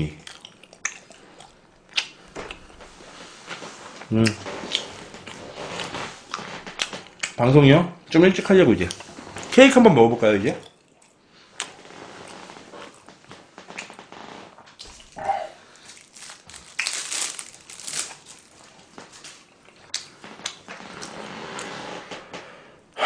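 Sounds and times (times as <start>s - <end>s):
plastic crinkling and rustling: 11.7s - 19.5s.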